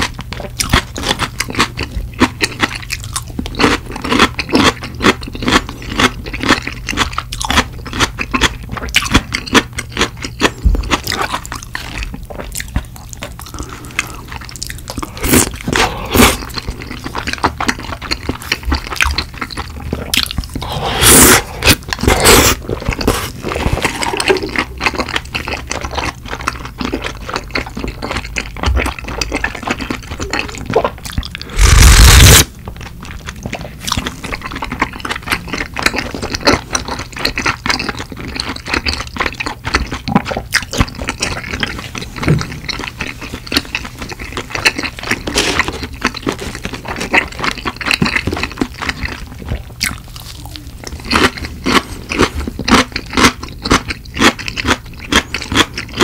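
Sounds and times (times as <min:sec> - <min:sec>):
person chewing food: 0:00.0 - 0:56.0
sauce slurping: 0:13.4 - 0:17.1, 0:18.4 - 0:24.8, 0:30.1 - 0:32.5.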